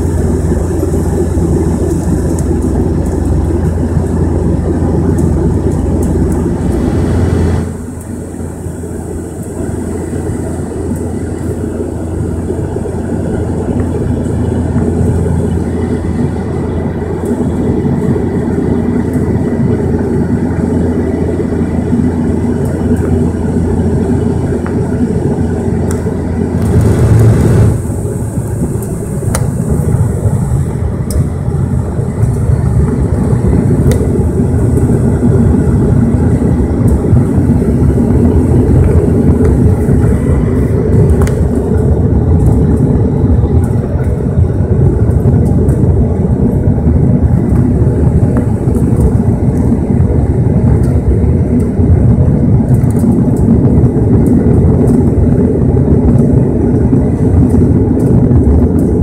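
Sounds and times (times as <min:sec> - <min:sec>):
rumble of rushing air: 0:00.0 - 0:59.0
turboprop engines droning: 0:00.0 - 0:59.0.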